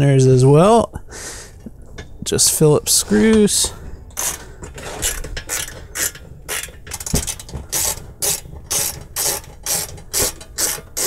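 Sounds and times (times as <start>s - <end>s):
screwdriver rasping clicks: 4.1s - 11.0s.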